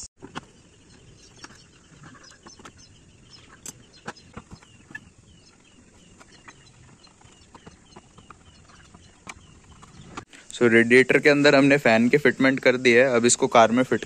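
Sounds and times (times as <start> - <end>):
bird chirping falling notes: 0.0 - 10.3.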